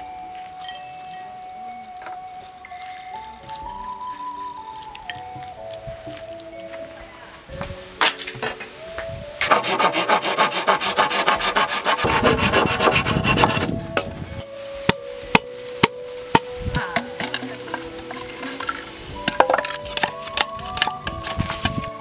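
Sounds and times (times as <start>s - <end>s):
saw rasping through bamboo: 9.4s - 13.7s.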